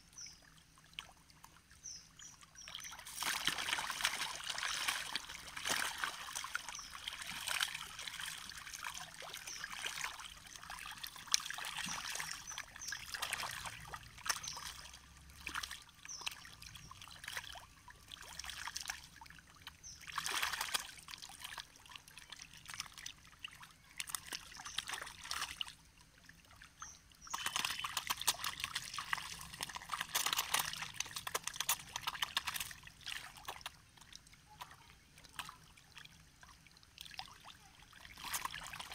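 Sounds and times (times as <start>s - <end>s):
fish thrashing and splashing: 2.8s - 19.0s, 27.2s - 34.1s, 38.0s - 38.9s.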